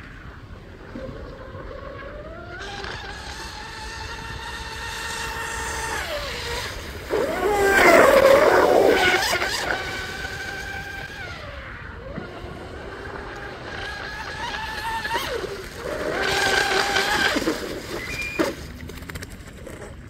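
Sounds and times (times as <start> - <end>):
electric motor whine: 0.0 - 19.9
brief high tone of jamming motor: 17.9 - 18.6.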